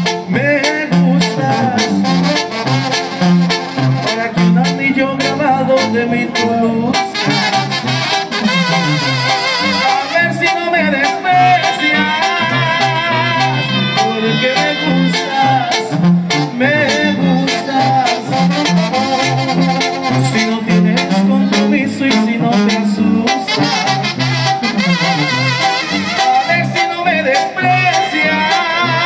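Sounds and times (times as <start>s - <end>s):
bouncing bass line: 0.0s - 29.0s
brass band playing: 0.0s - 29.0s
person singing: 9.8s - 19.4s, 20.1s - 24.0s, 26.1s - 29.0s.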